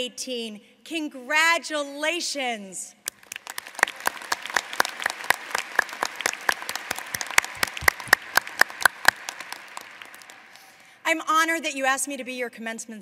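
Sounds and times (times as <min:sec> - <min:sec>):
close individual claps: 0:03.0 - 0:10.8
audience applauding: 0:03.0 - 0:10.9.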